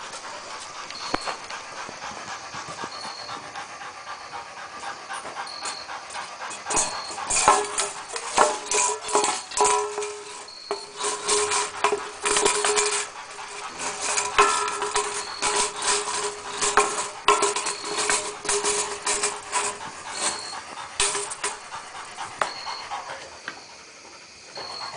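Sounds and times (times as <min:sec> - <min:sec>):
dog panting hard: 0:00.0 - 0:24.9
thin steady tone: 0:00.0 - 0:24.9
wire cage rattling: 0:06.6 - 0:22.8.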